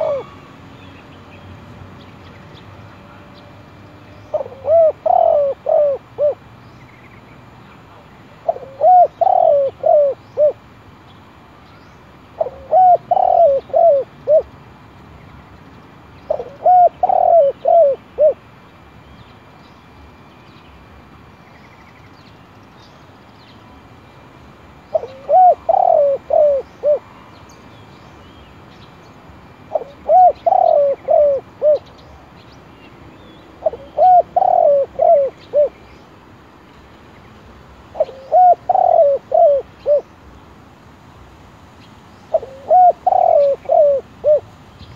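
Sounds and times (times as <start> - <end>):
dove cooing: 0.0 - 0.5, 4.3 - 6.4, 8.4 - 10.6, 12.4 - 14.5, 16.3 - 18.4, 24.9 - 27.1, 29.7 - 31.9, 33.6 - 35.8, 37.9 - 40.1, 42.3 - 44.5.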